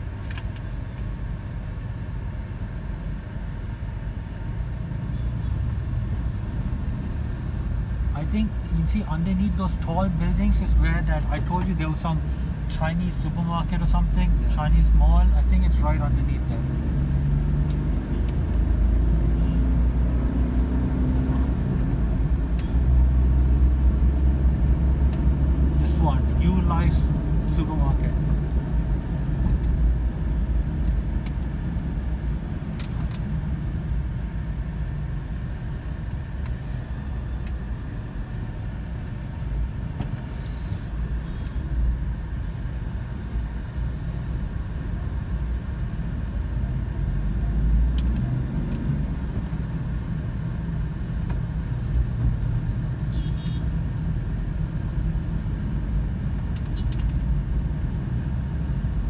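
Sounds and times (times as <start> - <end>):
car engine and tyre rumble: 0.0 - 59.0.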